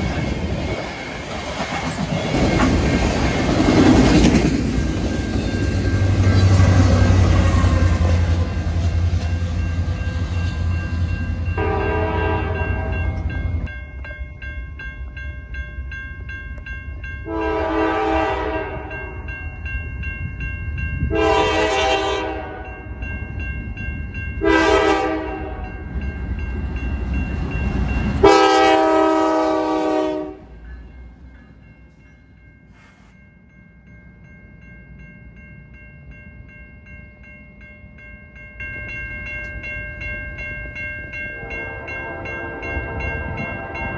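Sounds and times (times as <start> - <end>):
crossing bell ringing: 0.0 - 43.9
rumble of passing freight cars: 0.0 - 43.9
locomotive air horn blasts: 11.6 - 13.2, 17.3 - 19.0, 21.1 - 22.7, 24.4 - 25.6, 28.2 - 30.5, 41.4 - 43.9.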